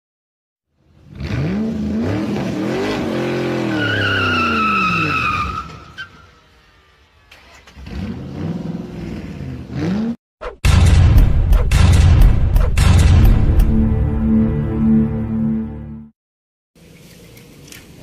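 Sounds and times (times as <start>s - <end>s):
tyre squeal: 3.6s - 6.4s.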